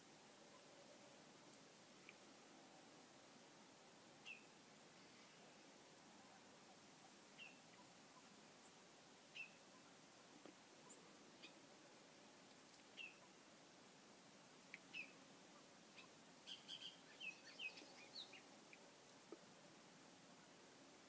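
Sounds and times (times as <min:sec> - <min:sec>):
faint bird chirps: 0:04.2 - 0:10.0, 0:10.8 - 0:11.7, 0:12.9 - 0:13.4, 0:14.7 - 0:18.9.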